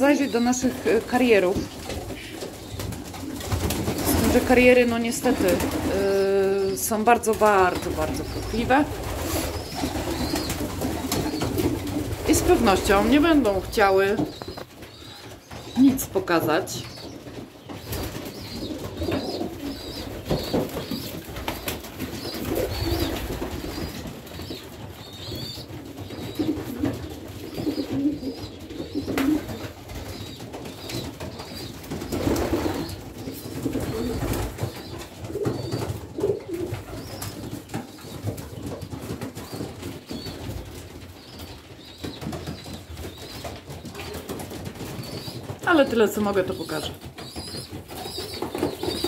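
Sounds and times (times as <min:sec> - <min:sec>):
pigeons cooing: 0:07.7 - 0:15.5, 0:17.8 - 0:37.3.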